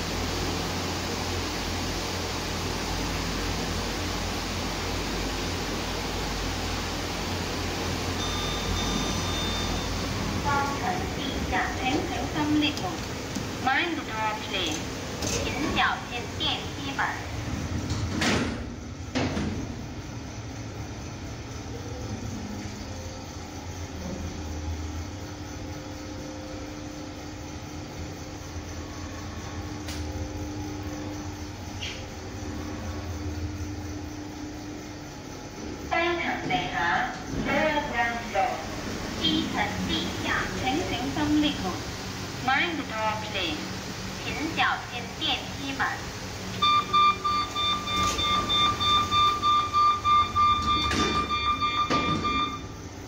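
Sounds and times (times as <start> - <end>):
lift car humming and rumbling: 0.0 - 53.0
pulsing electronic warning beep: 8.2 - 11.5, 46.6 - 52.9
lift doors knocking: 47.7 - 52.6.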